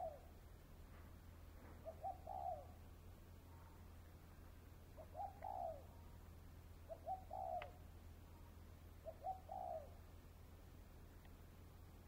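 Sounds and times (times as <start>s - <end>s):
dove cooing: 0.0s - 0.3s, 1.8s - 2.8s, 5.0s - 6.0s, 6.8s - 7.8s, 9.0s - 10.0s.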